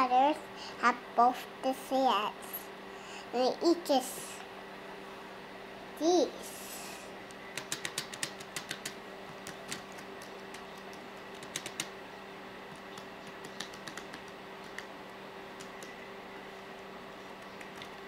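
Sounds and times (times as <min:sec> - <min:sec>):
steady low hum: 0:00.0 - 0:18.0
laptop keys clicking: 0:07.5 - 0:11.9, 0:12.7 - 0:14.9, 0:15.6 - 0:16.0.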